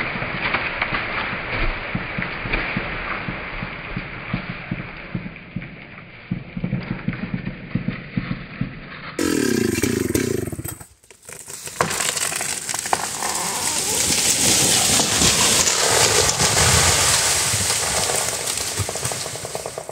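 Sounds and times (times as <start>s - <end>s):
tree cracking and crashing down: 0.0s - 5.2s, 9.2s - 19.9s
chainsaw running: 9.2s - 19.9s
dry leaves rustling and crunching: 11.1s - 19.9s.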